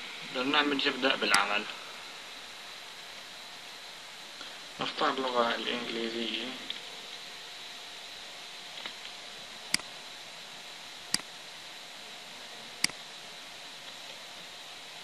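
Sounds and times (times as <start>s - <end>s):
steady hiss: 0.0s - 15.0s
computer mouse clicks: 12.8s - 13.0s.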